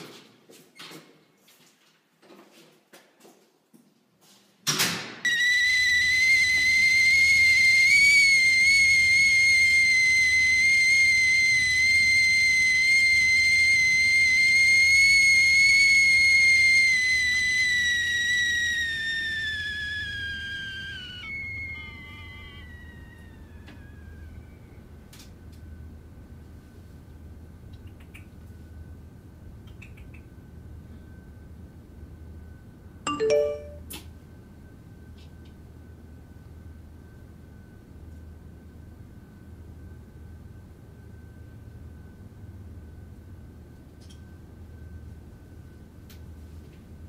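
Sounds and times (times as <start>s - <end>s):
high-pitched whistling tone: 5.3s - 25.0s, 33.1s - 33.8s.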